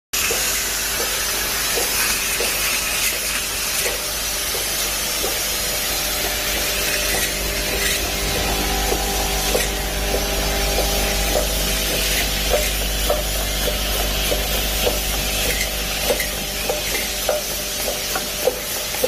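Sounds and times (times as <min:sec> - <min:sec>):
capping machine hiss and hum: 0:00.2 - 0:19.0.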